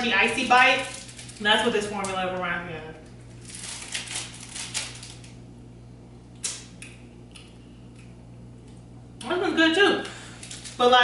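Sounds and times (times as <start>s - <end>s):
crunching ice pop: 3.4s - 5.4s.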